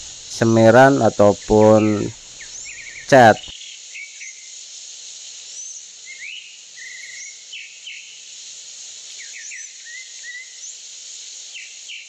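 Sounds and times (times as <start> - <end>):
birds chirping and whistling: 0.0 - 4.4, 5.6 - 8.1, 9.2 - 10.8
high-pitched insect drone: 0.0 - 12.0.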